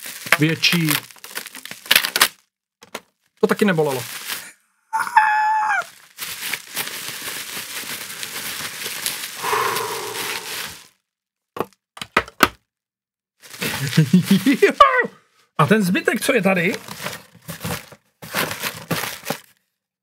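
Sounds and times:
packaging rustling and crinkling: 0:00.0 - 0:04.5, 0:05.9 - 0:10.9, 0:13.4 - 0:14.8, 0:16.6 - 0:19.6.

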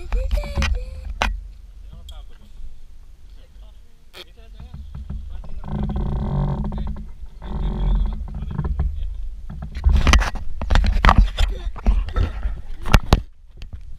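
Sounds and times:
wind rumbling on microphone: 0:00.0 - 0:13.9.

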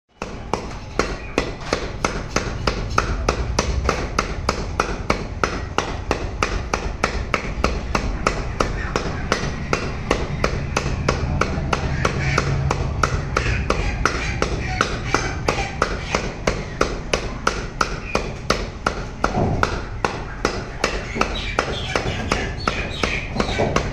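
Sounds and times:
cleaver chopping on wooden block: 0:00.2 - 0:23.9.

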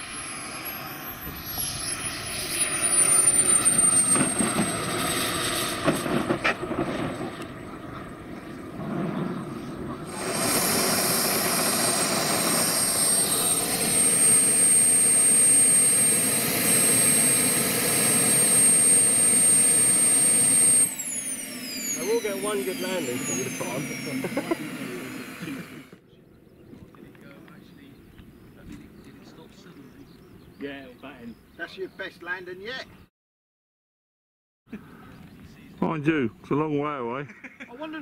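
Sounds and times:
model jet turbine whining: 0:00.0 - 0:26.0.

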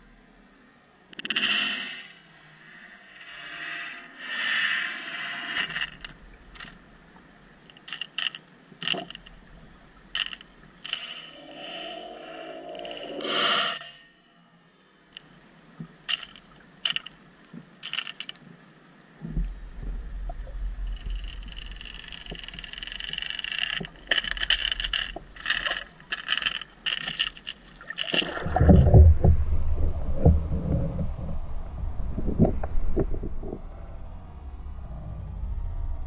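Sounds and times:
sharp clicks underwater: 0:01.1 - 0:02.0, 0:07.6 - 0:11.4, 0:15.1 - 0:18.5, 0:20.2 - 0:29.3
water hiss: 0:10.9 - 0:14.3
low rushing water: 0:18.9 - 0:36.0
rapid ticking and clicking: 0:20.9 - 0:28.3.

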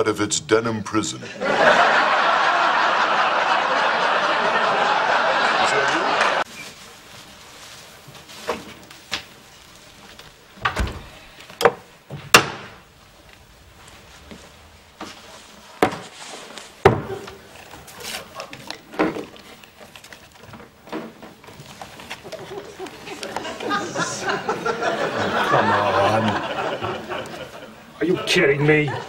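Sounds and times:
refrigerator door shutting: 0:10.6 - 0:12.8.

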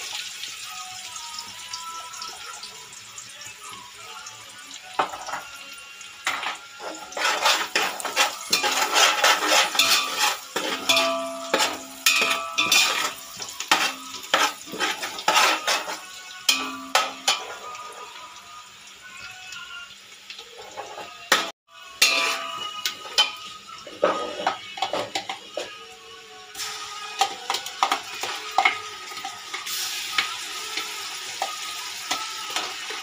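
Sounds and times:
soft frying sizzle: 0:00.0 - 0:33.0
metal ladle scraping a pot: 0:06.3 - 0:18.0, 0:22.0 - 0:25.7.

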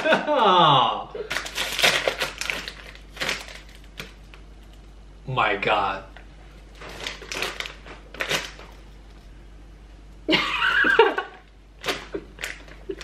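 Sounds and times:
plastic snack bag rustling: 0:01.3 - 0:04.4, 0:06.6 - 0:09.1, 0:11.8 - 0:13.0.

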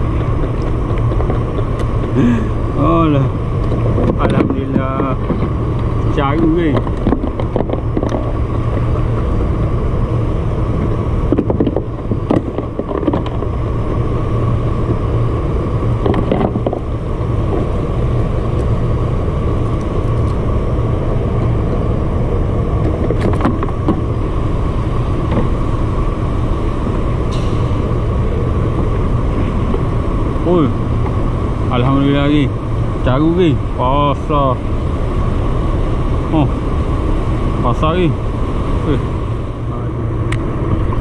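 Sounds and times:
engine-like low rumble: 0:00.0 - 0:41.0
fishing tackle clicks and knocks: 0:06.8 - 0:08.9.

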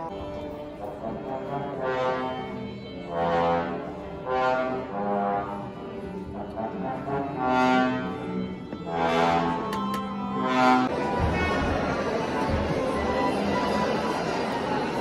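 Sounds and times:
brass long held notes: 0:00.0 - 0:15.0.

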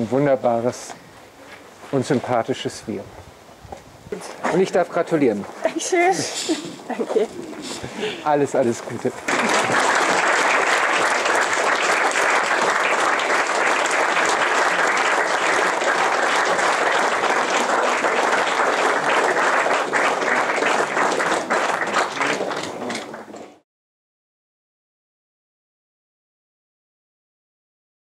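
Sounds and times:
crowd clapping: 0:07.4 - 0:23.6.

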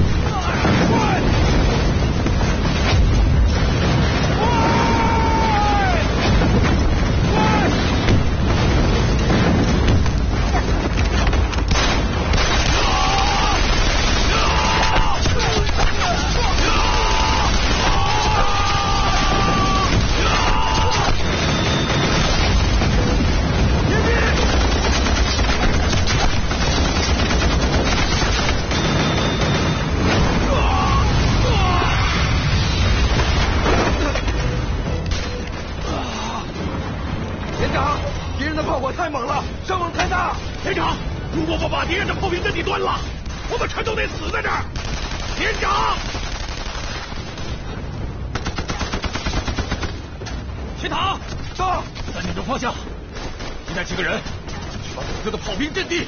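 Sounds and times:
explosions and fire: 0:00.0 - 0:56.0.

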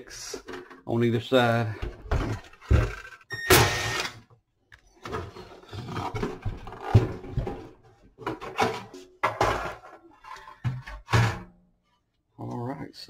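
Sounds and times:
sheet metal clunking and scraping: 0:05.1 - 0:11.6.

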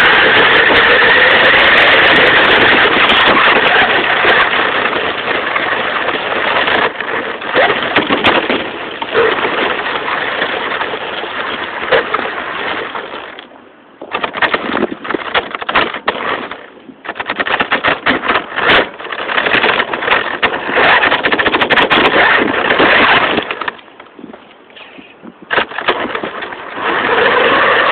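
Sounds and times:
toy car motor whine: 0:00.0 - 0:13.3, 0:25.6 - 0:27.9
car crunching over stones: 0:00.0 - 0:27.9.

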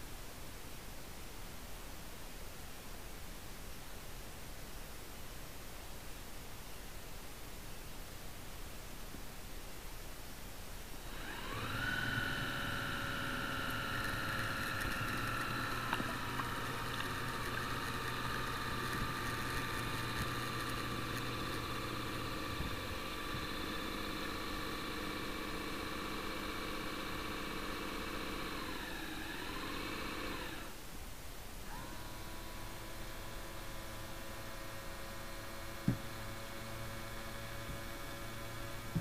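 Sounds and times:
electric motor whine: 0:11.0 - 0:30.8, 0:31.7 - 0:39.0.

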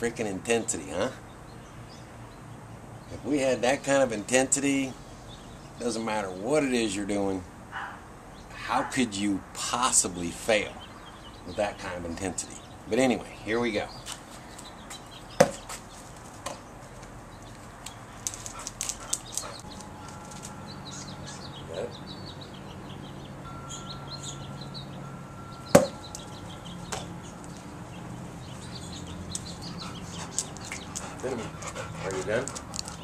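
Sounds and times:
small birds chirping: 0:00.0 - 0:33.0
ball smacking: 0:25.8 - 0:26.0.

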